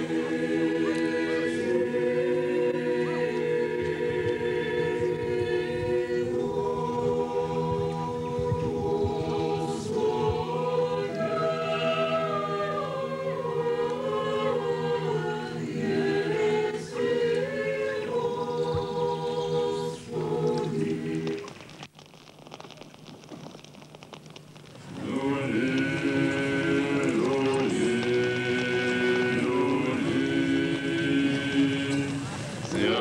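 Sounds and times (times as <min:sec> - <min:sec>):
choir singing chant: 0:00.0 - 0:21.4, 0:24.9 - 0:33.0
bonfire crackling: 0:00.0 - 0:33.0.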